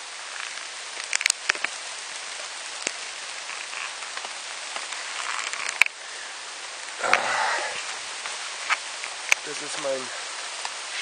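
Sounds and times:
heavy rain on leaves: 0.0 - 11.0.

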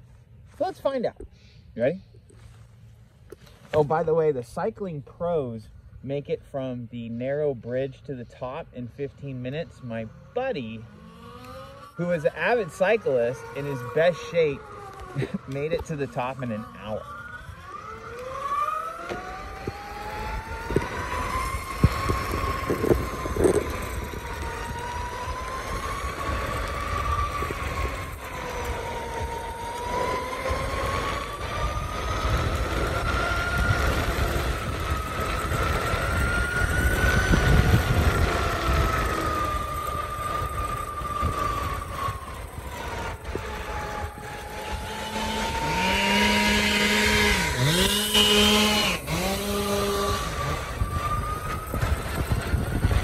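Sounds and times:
electric motor whining: 9.3 - 53.0
wind rumble on microphone: 19.1 - 53.0.

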